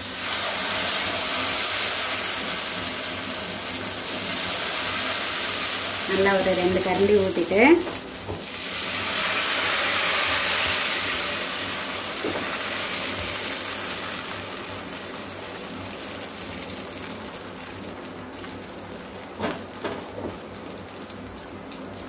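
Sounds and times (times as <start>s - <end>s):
batter sizzling in pan: 0.0s - 22.0s
light knocks on pan: 19.4s - 20.4s.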